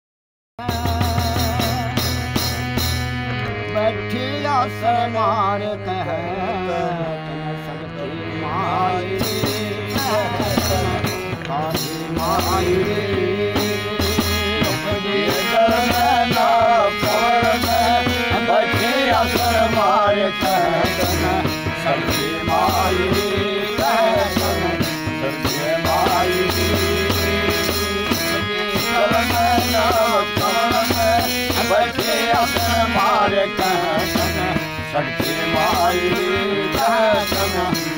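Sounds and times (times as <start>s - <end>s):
harmonium chords: 0.6s - 37.9s
man singing devotional song: 0.6s - 37.9s
hand drum beat: 9.2s - 37.9s.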